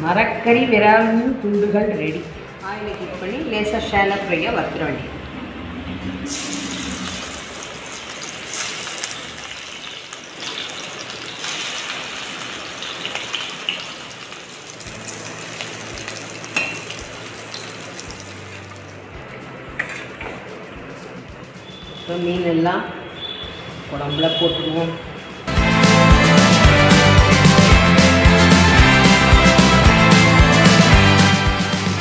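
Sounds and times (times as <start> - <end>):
hot oil sizzling and crackling: 6.3 - 19.4.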